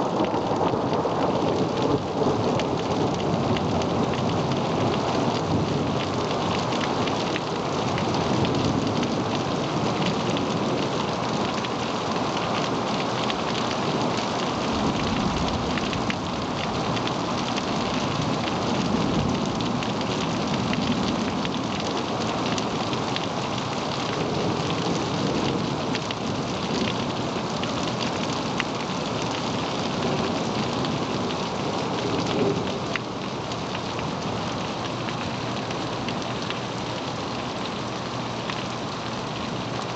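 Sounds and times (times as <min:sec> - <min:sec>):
raindrops ticking on surfaces: 0:00.0 - 0:39.9
steady rain falling: 0:00.0 - 0:39.9
low rolls of thunder: 0:14.8 - 0:16.4.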